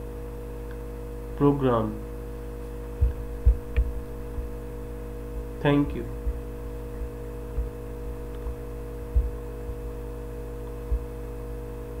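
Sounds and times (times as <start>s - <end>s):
electrical mains hum: 0.0s - 12.0s
short low thumps: 2.8s - 11.3s.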